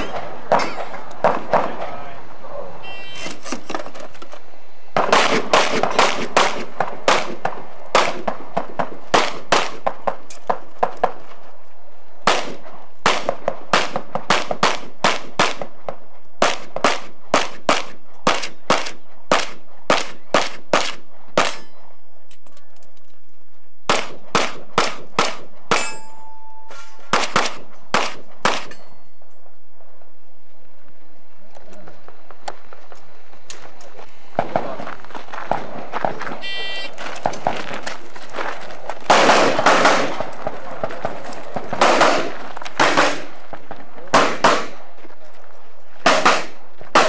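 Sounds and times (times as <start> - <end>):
steel targets clanging: 0.0 - 1.0, 25.7 - 27.1
pistol shots: 5.0 - 10.2, 12.2 - 21.8, 23.9 - 26.0, 26.7 - 28.8, 39.1 - 43.4, 44.1 - 44.8, 46.0 - 47.0.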